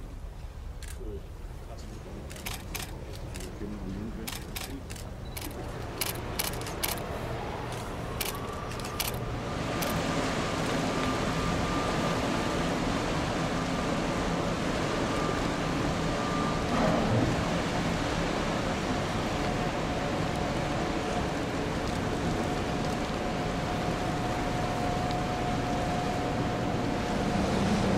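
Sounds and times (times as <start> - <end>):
camera shutter clicks: 2.3 - 3.5, 4.3 - 7.1, 7.8 - 9.2
ship rushing noise: 4.4 - 27.9
faint high whine: 5.2 - 21.7.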